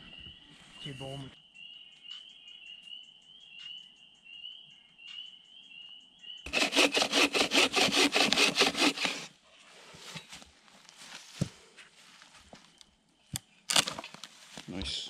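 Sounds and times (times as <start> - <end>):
hand saw cutting branch: 6.5 - 9.3.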